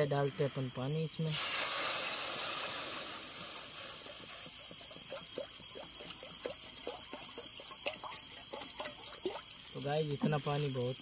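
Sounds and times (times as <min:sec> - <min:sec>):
water pouring into pan: 0:01.3 - 0:07.4.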